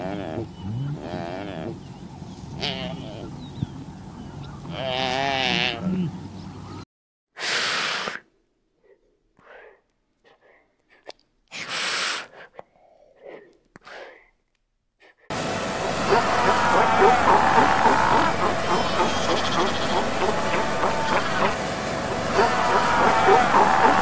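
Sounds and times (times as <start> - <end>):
animal cry with wavering pitch: 0.0 - 1.8, 4.7 - 6.1, 15.5 - 24.0
animal breathy hisses: 7.4 - 14.3
soft short breaths: 7.4 - 14.4.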